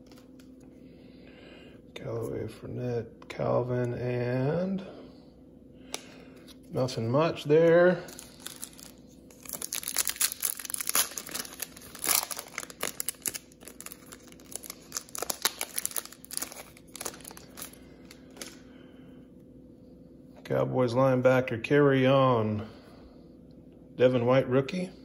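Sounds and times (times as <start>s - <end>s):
foil wrapper crinkling: 7.8s - 18.6s.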